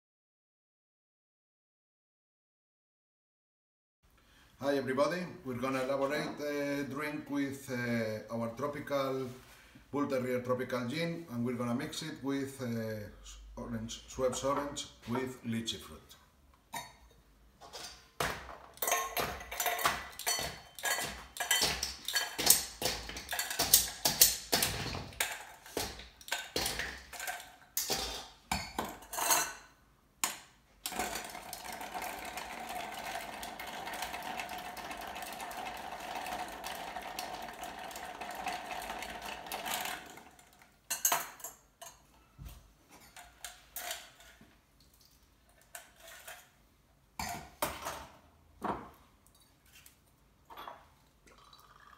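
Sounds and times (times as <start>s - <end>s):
ice clinking in glassware: 18.8s - 29.7s, 30.8s - 42.0s
liquid pouring into glass: 30.9s - 40.5s, 50.5s - 51.9s.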